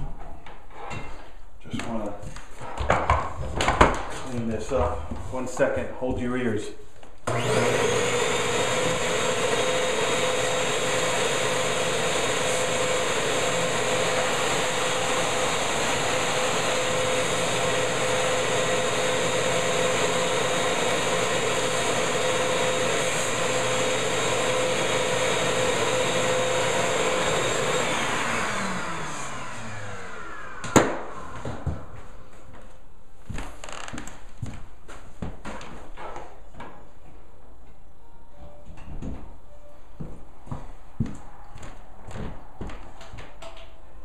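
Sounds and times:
vacuum cleaner running: 7.3s - 32.0s.

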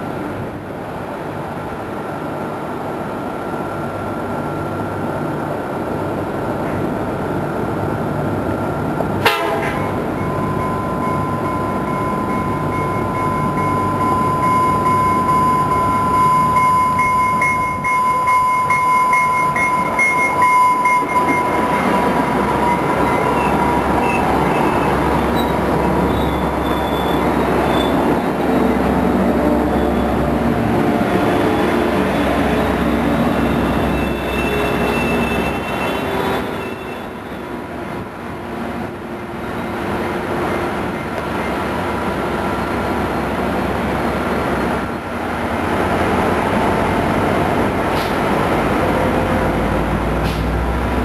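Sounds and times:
diesel locomotive engine rumble: 0.0s - 51.0s
wheel and rail noise: 0.0s - 51.0s
high wheel squeal: 10.2s - 28.5s, 29.5s - 30.3s, 31.0s - 37.6s.

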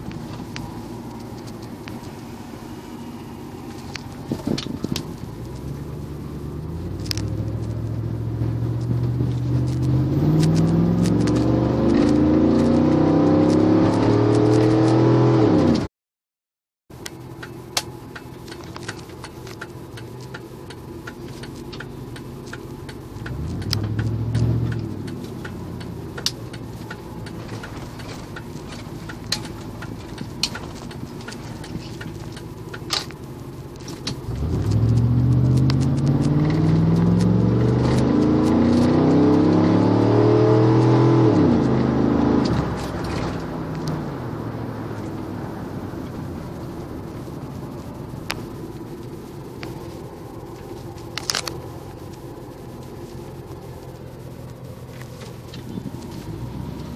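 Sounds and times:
car engine accelerating: 0.0s - 15.9s, 17.2s - 56.9s
car engine running steadily: 0.0s - 15.9s, 16.9s - 56.9s.

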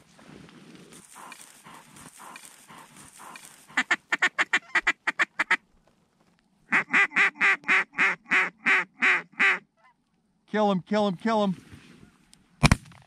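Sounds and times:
goose honking: 1.0s - 5.6s, 6.7s - 10.0s.

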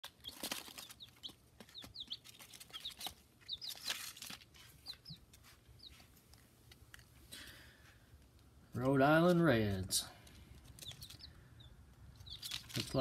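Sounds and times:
chicks peeping: 0.0s - 6.1s, 10.0s - 13.0s
pecking at feed on paper: 0.0s - 6.4s, 10.2s - 13.0s.

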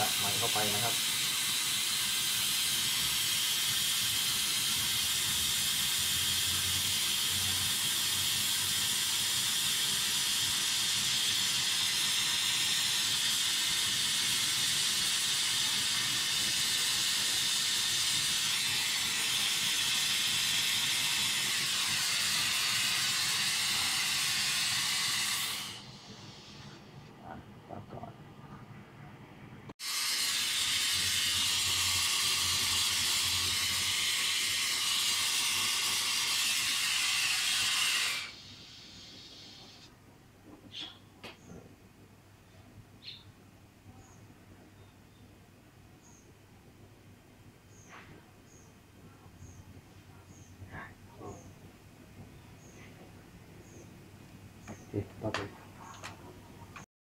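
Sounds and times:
torch flame hissing: 0.0s - 27.0s, 29.7s - 41.0s.

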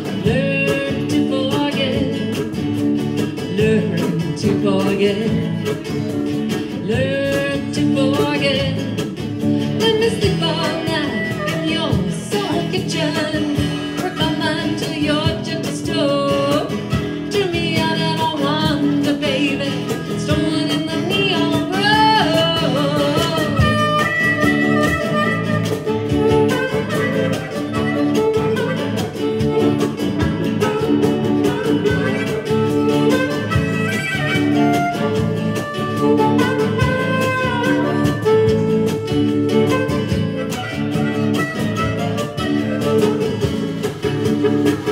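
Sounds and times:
strummed acoustic guitars: 0.0s - 44.9s
harmonica solo with bending notes: 23.2s - 44.9s.

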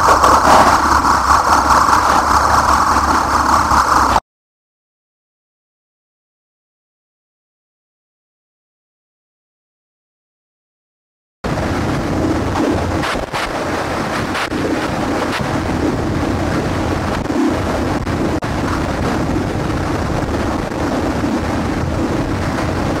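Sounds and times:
loud steady rushing noise: 0.0s - 4.2s, 11.4s - 23.0s
low drone: 0.0s - 4.2s, 11.5s - 23.0s.

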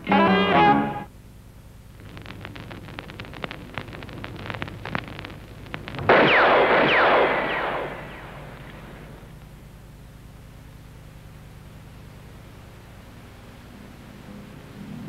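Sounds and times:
crackling clicks: 1.8s - 9.7s
explosion burst: 5.9s - 9.3s.

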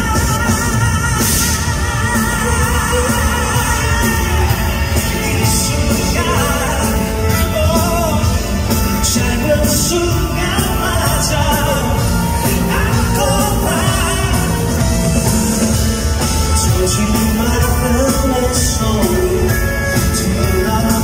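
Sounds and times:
live pop-rock band: 0.0s - 21.0s
man singing: 0.0s - 21.0s.

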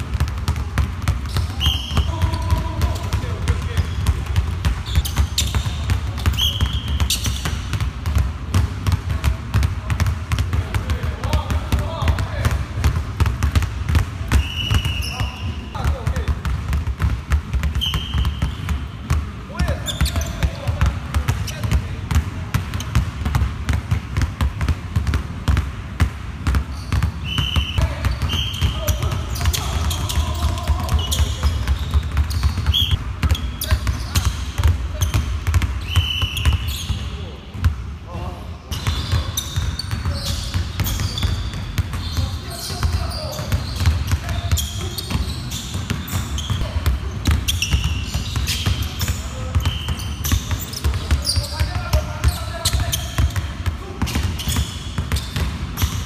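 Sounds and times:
basketballs bouncing on wooden floor: 0.0s - 56.0s
sneakers squeaking on court: 0.0s - 56.0s.

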